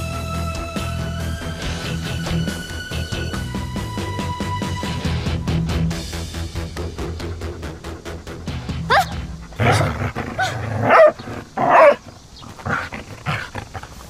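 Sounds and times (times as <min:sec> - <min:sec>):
background music: 0:00.0 - 0:12.0
puppy barking: 0:08.9 - 0:14.0
puppy yelping: 0:08.9 - 0:14.0.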